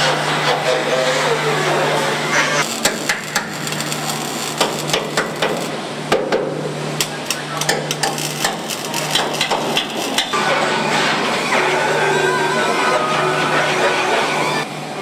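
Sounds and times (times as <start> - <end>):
low machinery hum: 0.0 - 15.0
sharp metallic knocks and clanks: 7.6 - 11.2.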